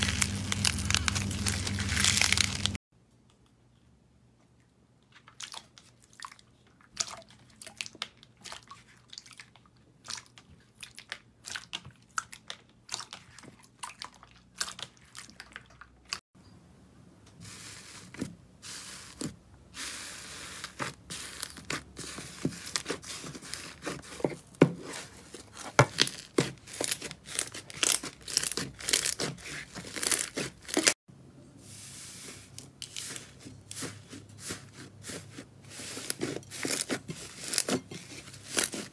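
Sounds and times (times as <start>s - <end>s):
slime crackling and popping: 0.0s - 2.8s, 25.9s - 30.9s
soft hiss of pressed slime: 31.5s - 36.2s.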